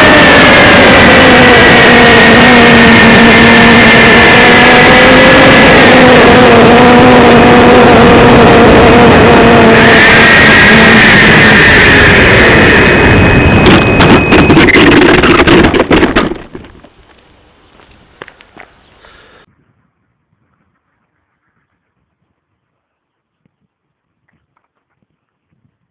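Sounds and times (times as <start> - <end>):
model plane motor whine: 0.0 - 15.6
wind rush on microphone: 0.0 - 16.9, 19.4 - 25.9.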